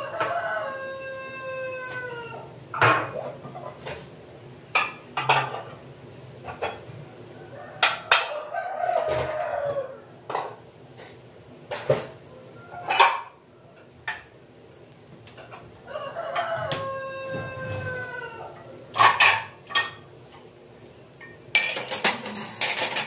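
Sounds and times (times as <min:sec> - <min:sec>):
rooster crowing: 0:00.0 - 0:02.6, 0:07.3 - 0:10.2, 0:12.3 - 0:13.9, 0:15.8 - 0:19.4
pots and utensils clinking: 0:04.7 - 0:05.8, 0:06.4 - 0:06.9, 0:07.8 - 0:09.4, 0:12.8 - 0:13.4, 0:18.9 - 0:20.5, 0:21.2 - 0:23.0.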